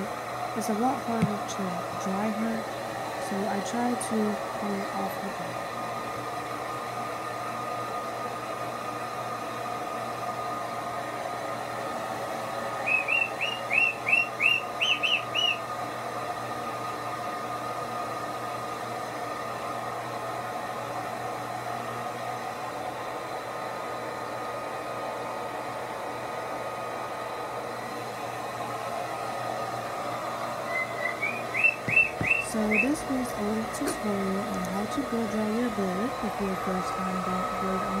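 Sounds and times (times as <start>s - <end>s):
hair dryer blowing: 0.0s - 38.0s
parrot chirping: 12.8s - 15.6s, 30.7s - 33.0s.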